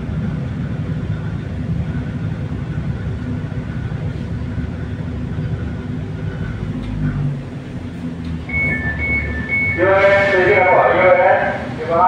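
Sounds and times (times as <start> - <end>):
train running rumble: 0.0 - 12.0.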